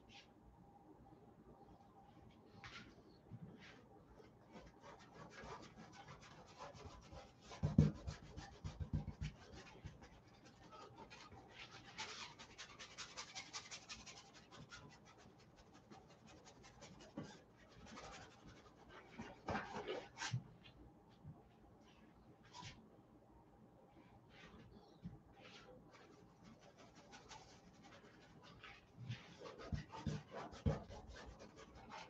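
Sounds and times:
brush scratching on canvas: 3.6 - 20.4, 24.3 - 32.0.

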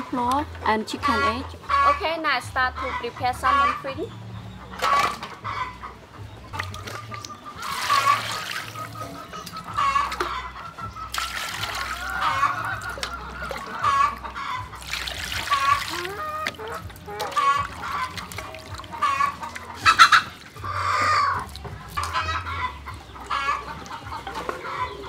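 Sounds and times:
hen clucking: 0.7 - 25.0
water splashing into steel basin: 6.6 - 10.4, 11.1 - 22.4.

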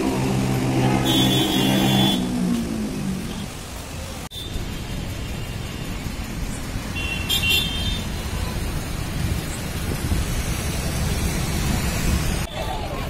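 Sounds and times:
road traffic rumble: 0.0 - 13.0
high vehicle horn toot: 1.0 - 2.3.

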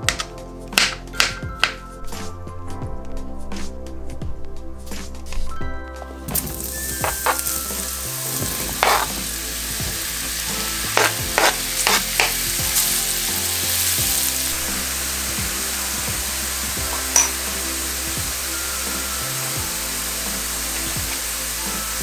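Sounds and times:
spatula scraping: 6.4 - 15.3
mushrooms sizzling in frying pan: 6.4 - 22.0.

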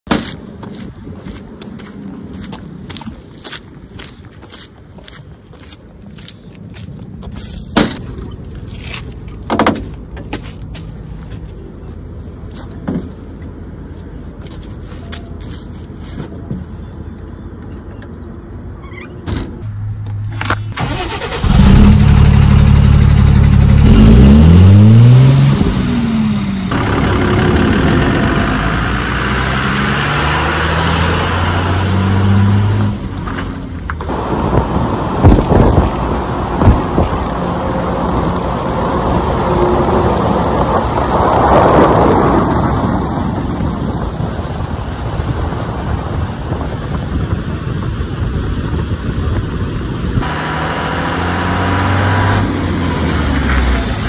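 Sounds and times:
diesel engine starting and revving: 19.6 - 54.0.

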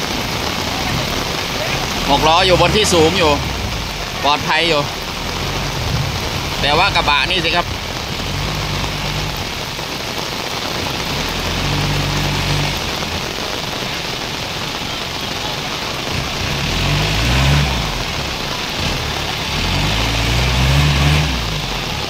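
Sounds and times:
heavy rain pouring: 0.0 - 22.0
vehicle engine revving: 0.0 - 22.0.

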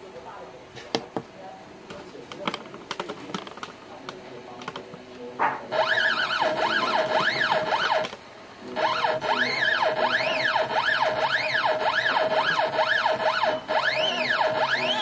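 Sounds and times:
steady lower tone: 5.6 - 15.0
stepper motor whine: 5.7 - 15.0.

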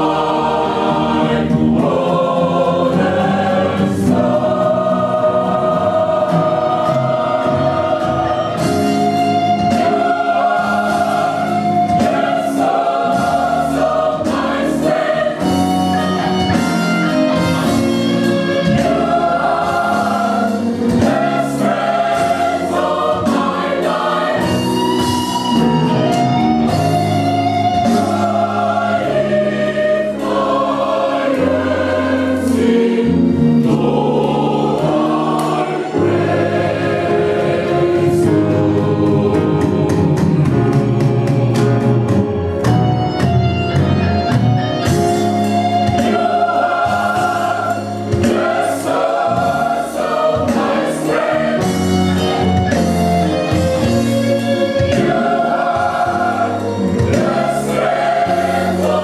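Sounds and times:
gospel choir singing: 0.0 - 44.0, 44.8 - 59.0
saxophone: 15.4 - 19.0.

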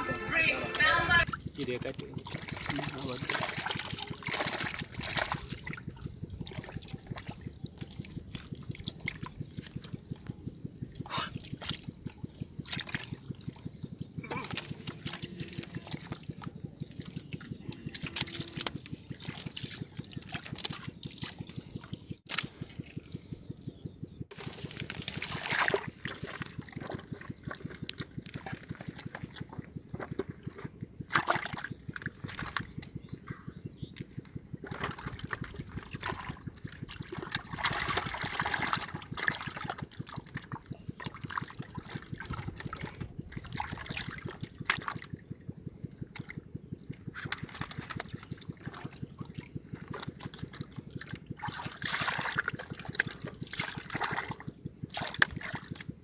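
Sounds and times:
hand scooping wet mud: 14.0 - 23.0, 24.3 - 32.8, 34.0 - 45.0, 47.1 - 55.9.

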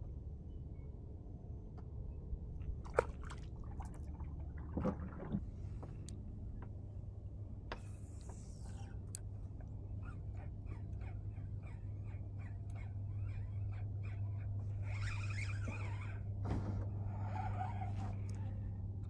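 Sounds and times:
water dripping and sloshing: 2.6 - 6.0
paddle dipping in water: 2.8 - 5.9.

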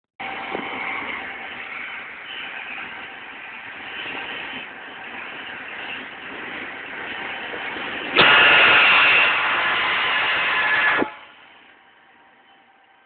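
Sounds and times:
diesel locomotive engine running: 0.2 - 13.0
locomotive horn: 8.2 - 11.6.

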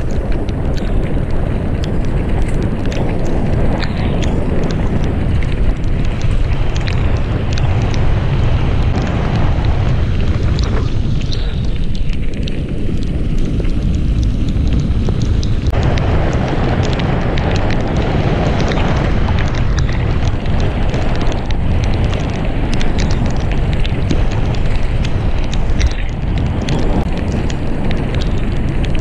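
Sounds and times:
bike rattling: 0.0 - 29.0
tyres rolling on wet gravel: 0.0 - 29.0
wind buffeting microphone: 0.0 - 29.0
stones clicking: 10.2 - 29.0.

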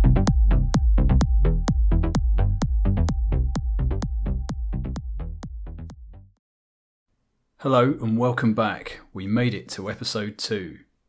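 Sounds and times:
electronic music with beat: 0.0 - 6.4.

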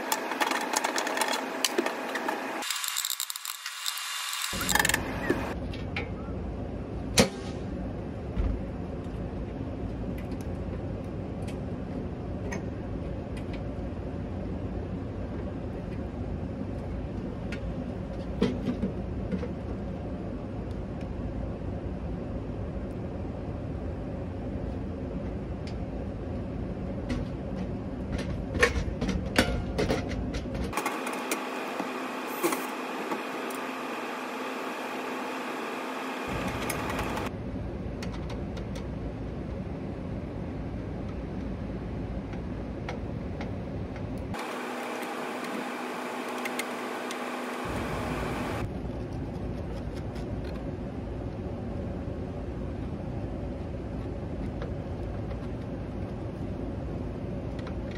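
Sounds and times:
mechanical hum with low rumble: 0.0 - 57.9.

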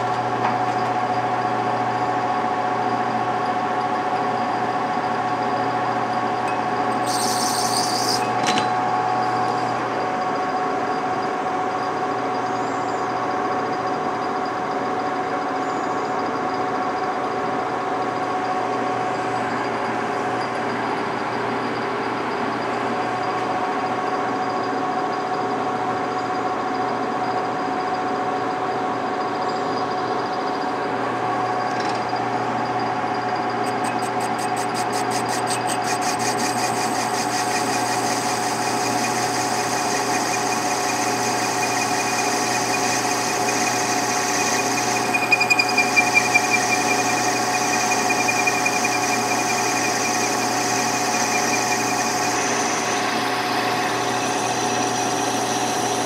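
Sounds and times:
metal lathe humming and whining: 0.0 - 56.0
high-pitched screech: 7.0 - 8.4, 33.6 - 56.0.

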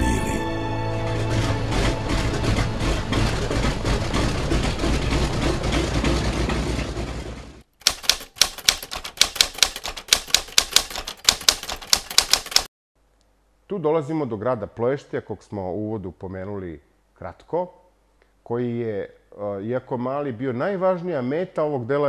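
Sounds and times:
mechanical typewriter clacking: 7.8 - 12.7.

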